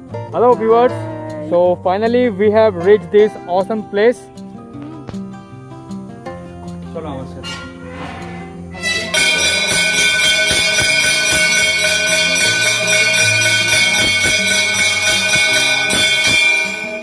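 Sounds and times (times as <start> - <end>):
brass bells ringing: 8.7 - 17.0.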